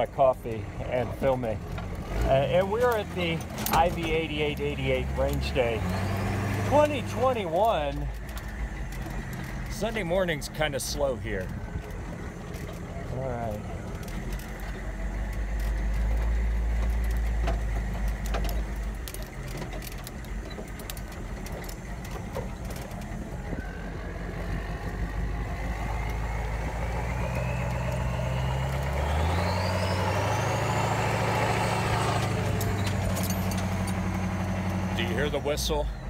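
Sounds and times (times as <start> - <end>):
diesel engine rumble: 0.0 - 36.0
loose clicks and rattles: 13.9 - 23.3.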